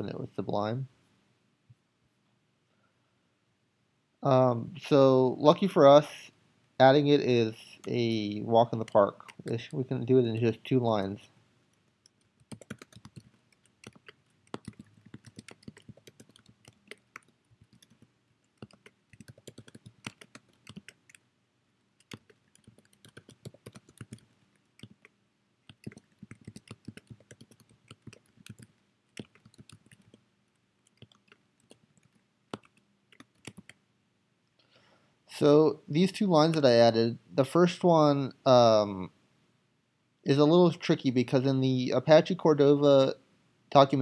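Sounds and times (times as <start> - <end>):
computer keyboard typing: 7.8 - 10.6, 12.0 - 21.2, 22.0 - 33.8.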